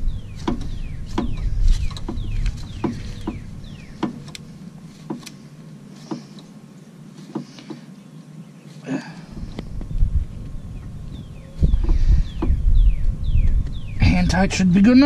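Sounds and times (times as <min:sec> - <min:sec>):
wind rumbling on microphone: 0:00.0 - 0:05.5, 0:09.2 - 0:15.0.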